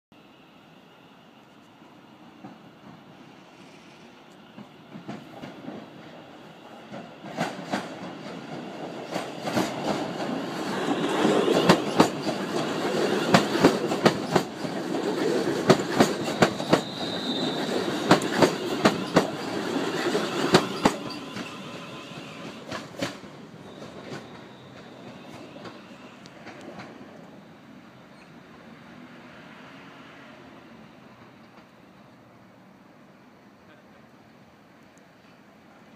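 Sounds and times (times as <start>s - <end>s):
electric train passing: 0.2s - 35.9s
wheels clacking over rail joints: 6.7s - 21.6s, 22.2s - 27.3s.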